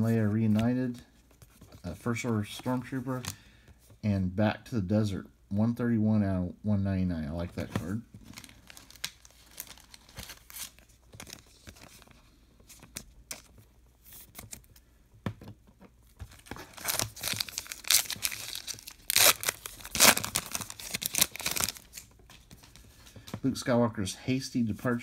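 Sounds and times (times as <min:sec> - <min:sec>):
card pack wrapper tearing: 0:08.3 - 0:12.0, 0:16.3 - 0:22.1.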